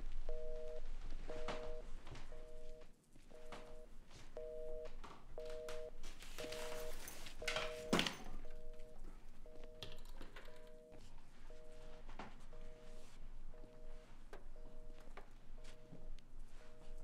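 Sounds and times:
telephone busy signal: 0.3 - 2.8, 3.4 - 9.9, 10.5 - 14.0.

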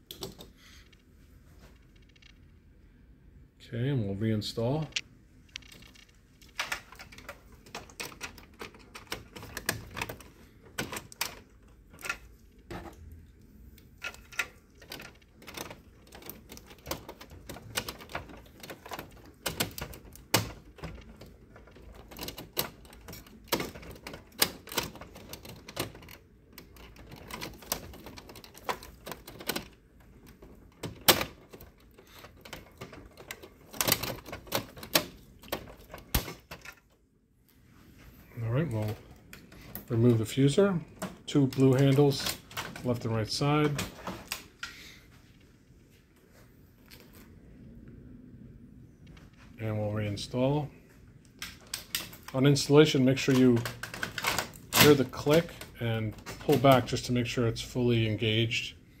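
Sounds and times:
plastic parts clicking and knocking: 0.0 - 1.1, 4.9 - 37.0, 38.7 - 44.8, 51.3 - 52.4, 53.0 - 57.2.

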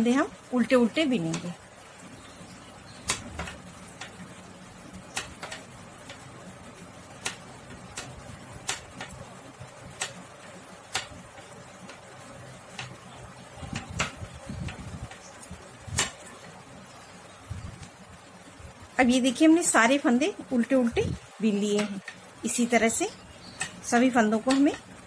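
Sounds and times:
metal knitting needles clicking: 3.0 - 4.2, 5.0 - 6.3, 7.2 - 13.0, 13.7 - 16.5, 21.5 - 25.0.

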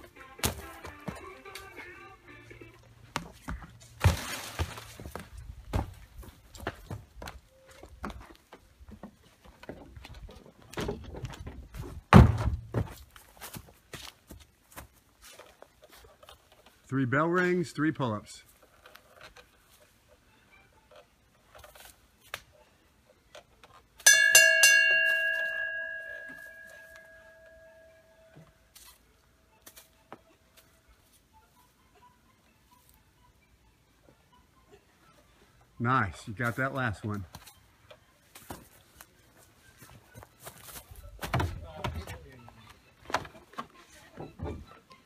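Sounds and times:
metal bell ringing: 24.0 - 28.3.

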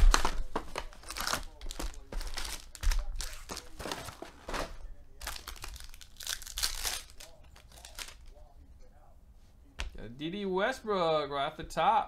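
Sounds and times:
foil wrappers crinkling and tearing: 0.0 - 8.4.

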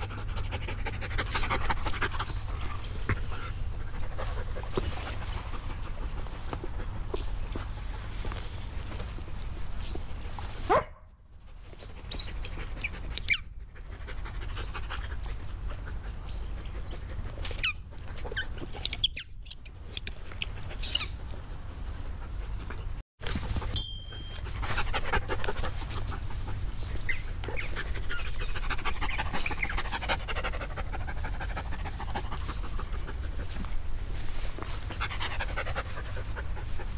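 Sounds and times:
dog panting: 0.0 - 7.6, 27.4 - 33.8, 34.6 - 36.9.

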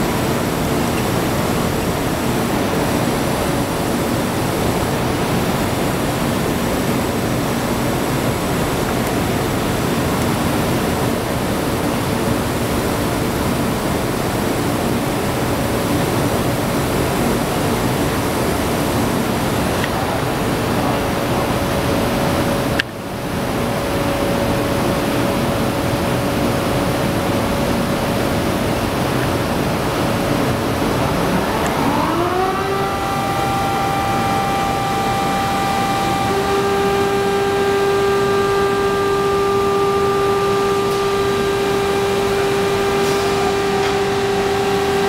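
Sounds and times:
saw machinery rushing noise: 23.7 - 45.0.

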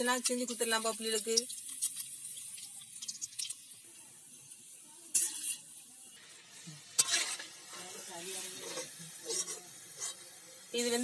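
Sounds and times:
food sizzling in hot oil: 0.0 - 11.0
metal spatula scraping pan: 5.1 - 5.8, 6.9 - 10.3.

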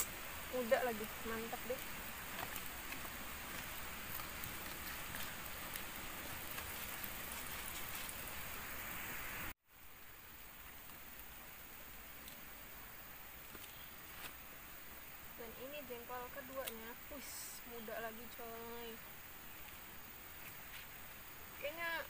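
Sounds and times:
dripping ticks: 0.0 - 8.2, 16.4 - 17.4
steady rain hiss: 0.0 - 22.0.

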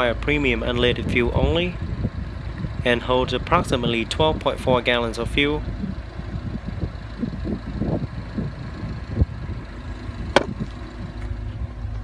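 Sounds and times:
steady low rumble: 0.0 - 12.0
fuel filler door clicking shut: 10.3 - 11.3.

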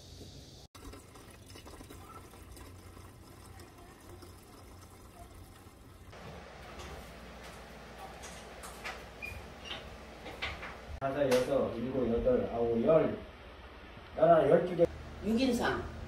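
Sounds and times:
fluid pouring from plastic bottle: 0.8 - 6.0.

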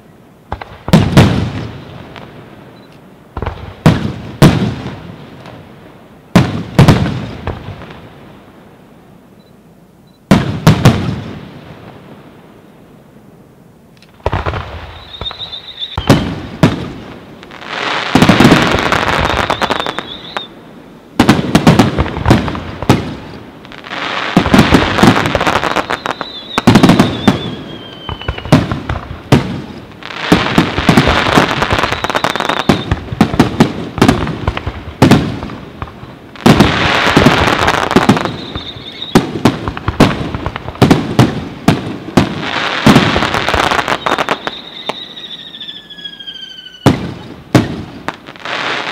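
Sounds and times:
fireworks bursting: 0.0 - 8.5, 10.2 - 12.4, 14.0 - 48.9
high whistling tone: 14.9 - 16.2, 19.3 - 20.5, 25.8 - 28.5, 38.2 - 39.2, 43.9 - 46.9.

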